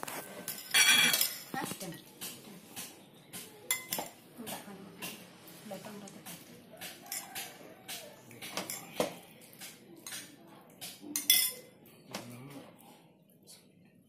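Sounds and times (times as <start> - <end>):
metal spoon clinking on pot: 0.5 - 1.5, 3.7 - 4.2, 6.8 - 7.6, 11.1 - 11.7.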